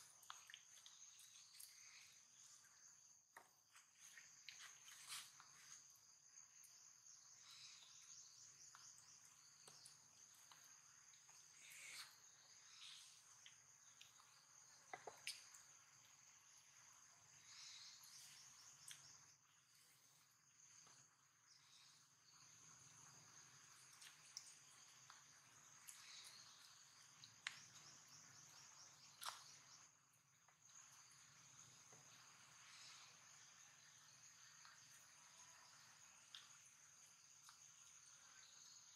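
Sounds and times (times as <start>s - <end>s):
high-pitched insect chorus: 0.0s - 38.9s
soft chirps: 0.0s - 38.9s.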